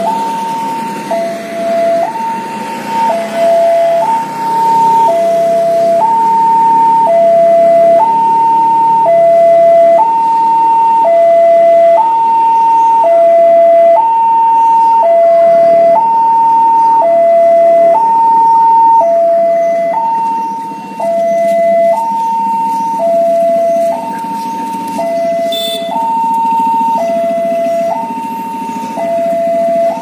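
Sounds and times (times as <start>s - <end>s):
level-crossing alarm two-tone: 0.0s - 30.0s.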